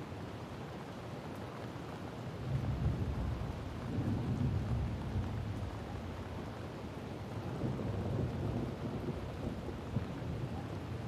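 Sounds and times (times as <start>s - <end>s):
steady rain: 0.0s - 11.0s.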